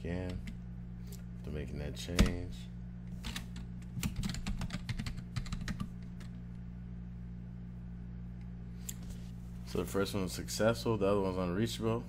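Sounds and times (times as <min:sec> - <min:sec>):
low hum: 0:00.0 - 0:12.0
typing on computer keyboard: 0:04.0 - 0:05.9.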